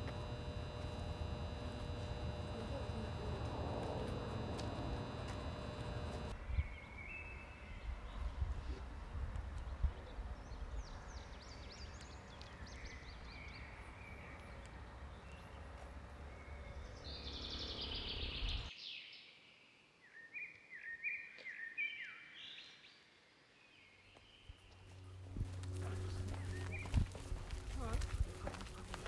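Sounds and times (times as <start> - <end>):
birds chirping and singing: 16.4 - 19.2, 25.4 - 28.8.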